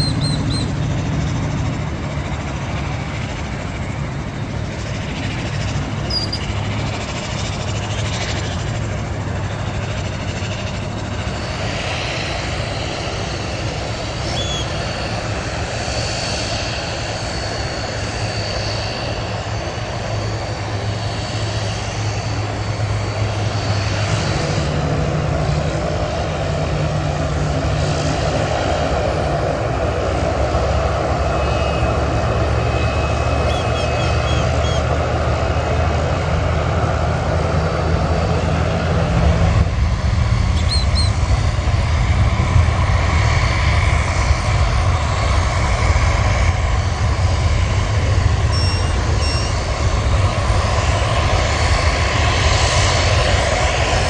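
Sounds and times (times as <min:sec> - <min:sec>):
airplane engines droning: 0:00.0 - 0:54.0
faint high whine: 0:48.4 - 0:49.8.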